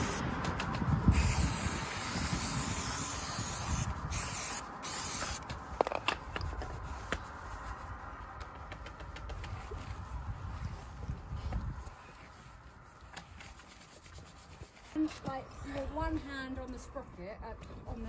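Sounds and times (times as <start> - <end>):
aerosol can spraying: 0.0 - 0.2, 1.1 - 5.4.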